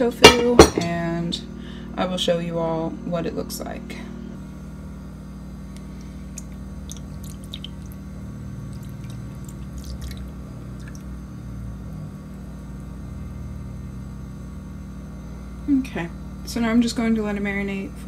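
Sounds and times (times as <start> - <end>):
steady low hum: 0.0 - 18.0
faint drips: 5.8 - 11.2
marinade pouring: 5.9 - 11.2.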